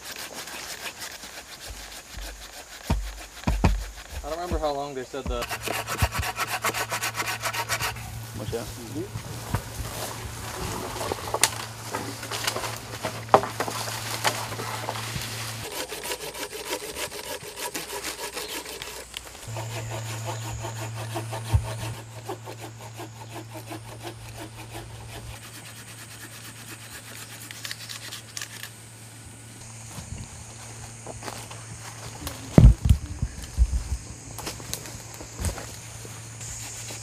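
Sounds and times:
hand saw cutting branch: 0.0 - 9.0, 9.9 - 28.8
wood knocks: 1.7 - 4.3.

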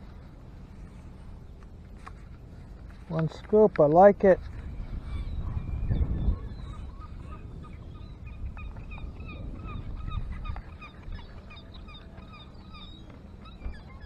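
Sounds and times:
gulls calling: 0.0 - 14.0
surf and wind rumble: 4.2 - 11.6.

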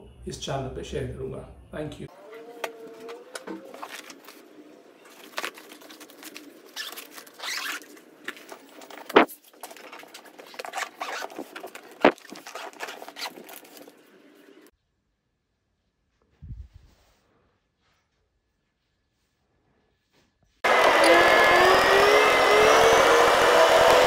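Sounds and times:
clothes rustling against plastic shell: 3.0 - 14.2.

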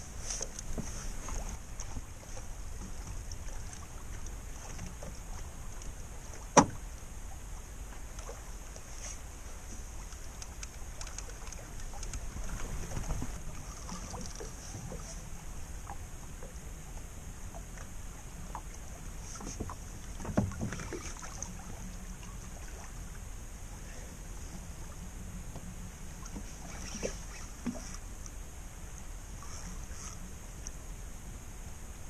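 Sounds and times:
water lapping against hull: 0.0 - 32.0
faint ticks: 0.2 - 6.0, 8.0 - 20.8, 24.4 - 30.9.

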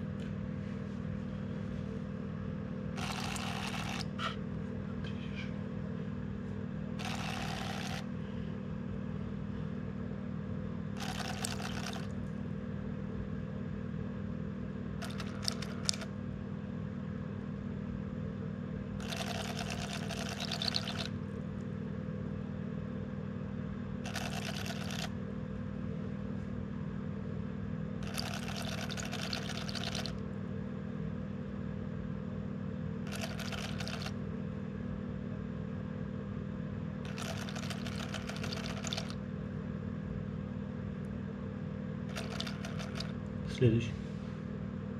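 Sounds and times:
small motor whirring: 3.0 - 4.2, 7.0 - 8.1, 11.0 - 12.1, 15.0 - 16.1, 19.0 - 21.1, 24.0 - 25.1, 28.0 - 30.2, 33.1 - 34.1, 37.1 - 39.2, 42.1 - 43.2.

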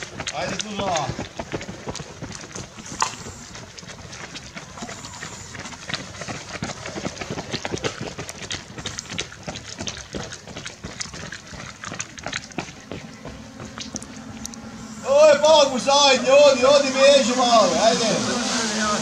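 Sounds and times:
runners' footsteps: 0.0 - 14.9.

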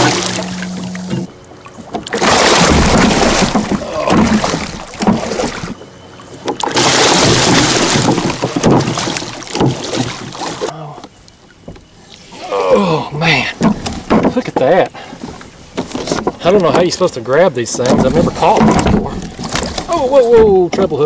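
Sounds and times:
fish thrashing and splashing: 0.0 - 10.7, 17.8 - 20.2.

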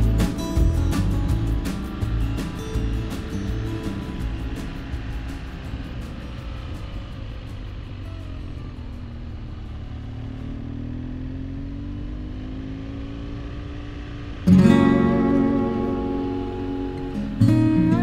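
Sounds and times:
acoustic guitar music: 0.0 - 10.2, 14.4 - 18.0
motorcycle engine running: 0.0 - 18.0
wind and road noise: 0.0 - 18.0.

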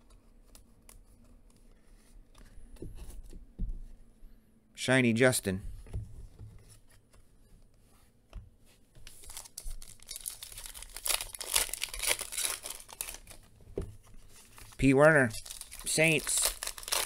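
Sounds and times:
foil wrapper tearing and crinkling: 9.2 - 13.4, 14.6 - 17.0.

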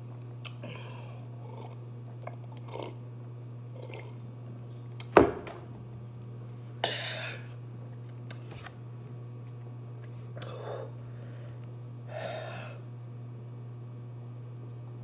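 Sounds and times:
sips and swallows: 0.4 - 3.0, 3.8 - 4.2
glass knocking on table: 5.2 - 5.6.

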